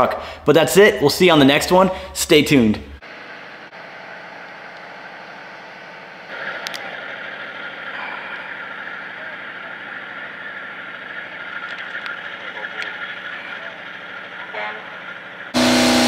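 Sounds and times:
diesel locomotive engine running: 1.0 - 16.0.

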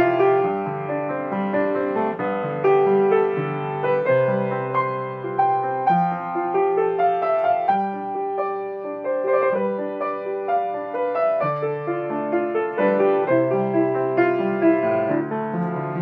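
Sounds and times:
grand piano piece: 0.0 - 16.0.

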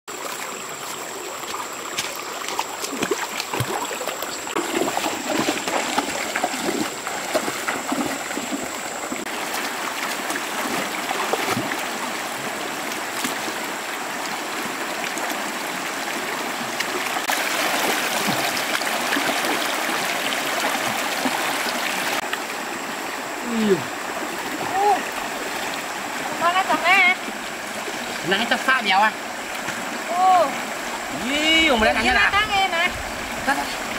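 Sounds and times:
rocky river flowing: 0.1 - 33.9
knocks and splashes in water: 1.4 - 22.4.

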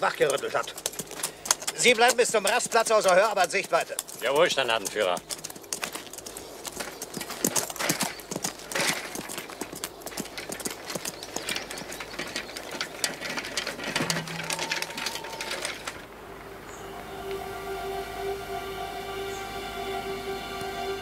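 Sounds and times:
horse hooves clip-clopping on dirt: 0.0 - 16.9.

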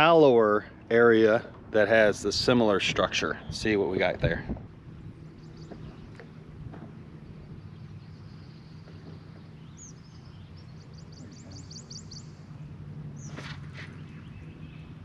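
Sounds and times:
steady low hum: 0.0 - 15.0
bird singing high notes: 7.4 - 12.6.

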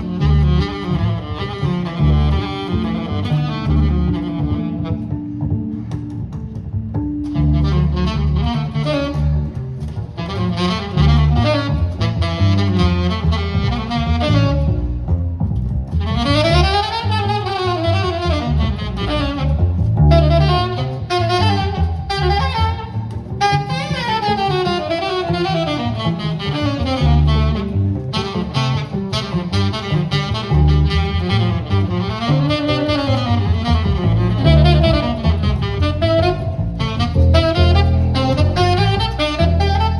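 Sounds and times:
double bass line: 0.0 - 39.9
saxophone melody: 0.0 - 39.9.

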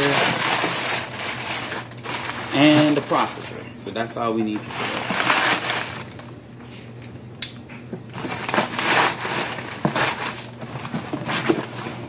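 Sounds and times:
packing paper rustling: 0.0 - 3.6, 4.5 - 6.4, 8.1 - 12.0
cardboard flaps folding: 4.6 - 6.2, 8.1 - 12.0.

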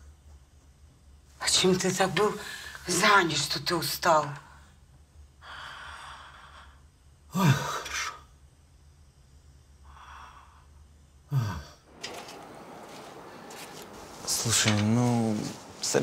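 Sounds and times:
person sighing or groaning: 11.3 - 11.8.

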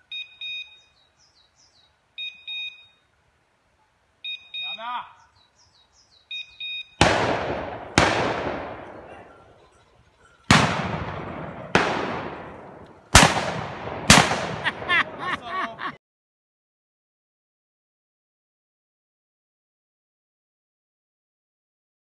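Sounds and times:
short electronic beep: 0.1 - 0.8, 2.2 - 3.0, 4.2 - 4.9, 6.3 - 7.0
shotgun shots: 7.0 - 9.3, 10.5 - 15.2.

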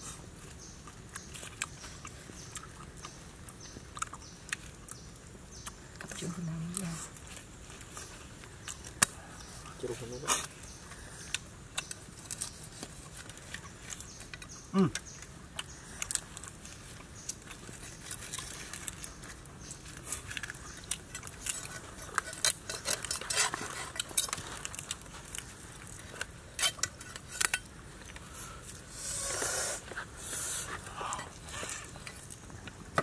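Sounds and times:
knife crunching crisp roast skin: 11.3 - 28.3.

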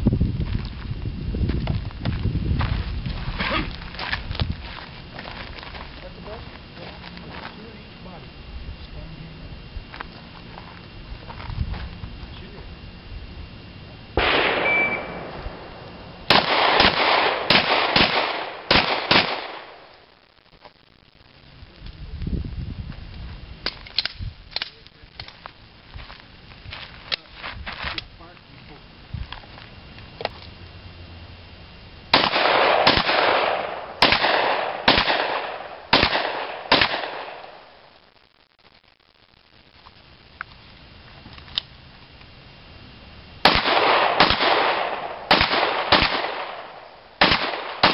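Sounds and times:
pistol shots with long echo: 14.2 - 19.9, 32.1 - 37.7, 43.4 - 47.9.

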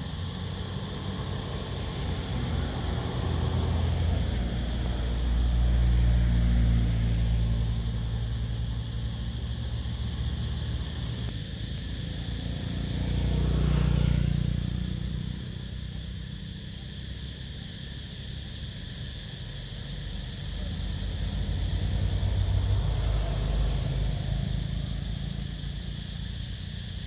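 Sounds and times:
cars passing: 0.0 - 27.0
steady road noise: 0.0 - 27.0.

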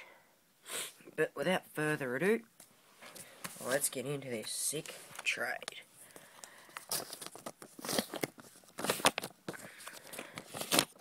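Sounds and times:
paper rustling: 6.1 - 11.0
paper envelope tearing: 6.9 - 9.3, 9.9 - 11.0.

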